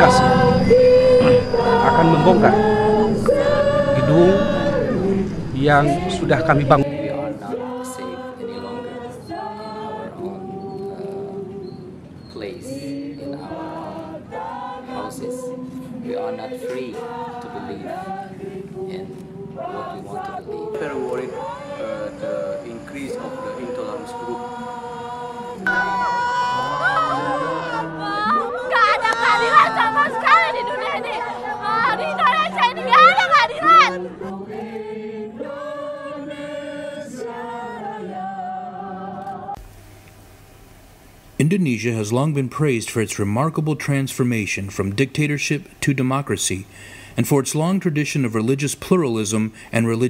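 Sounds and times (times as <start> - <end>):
choir singing long notes: 0.0 - 39.6.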